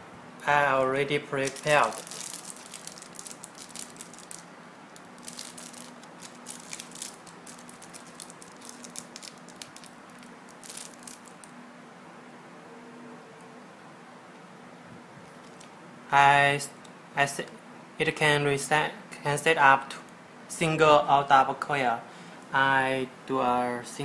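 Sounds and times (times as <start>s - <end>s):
faint steady hum: 0.0s - 24.0s
plastic bag crinkling: 0.8s - 11.5s.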